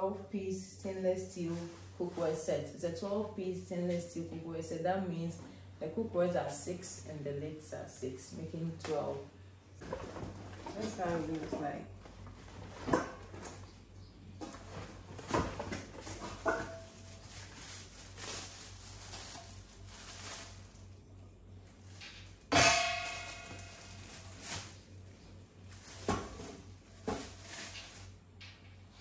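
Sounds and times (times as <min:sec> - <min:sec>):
knocks and plastic rustles: 0:09.8 - 0:20.9, 0:21.8 - 0:28.8
loud metallic clang: 0:22.5 - 0:24.2.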